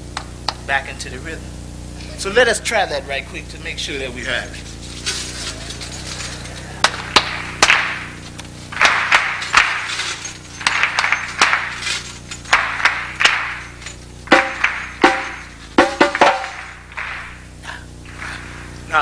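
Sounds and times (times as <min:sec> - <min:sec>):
audience clapping along: 0:06.8 - 0:09.9, 0:10.6 - 0:11.8, 0:12.5 - 0:19.0
hand drum rhythm: 0:14.3 - 0:16.6.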